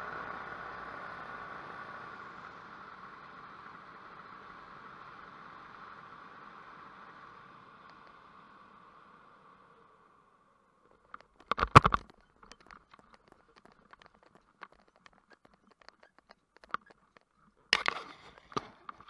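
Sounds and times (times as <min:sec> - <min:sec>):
gear handling rustles and ticks: 0:10.9 - 0:19.0
knocks and scraping on microphone: 0:11.1 - 0:19.0.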